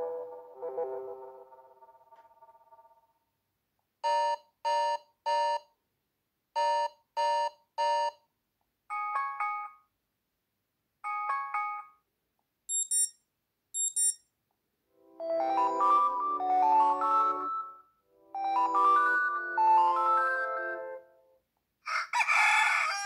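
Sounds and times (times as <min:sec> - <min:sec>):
electronic beeps: 0:12.7 - 0:13.2, 0:13.8 - 0:14.2
high-pitched beeps: 0:12.7 - 0:13.2, 0:13.8 - 0:14.2
phone alarm chime: 0:12.7 - 0:13.2, 0:13.8 - 0:14.2.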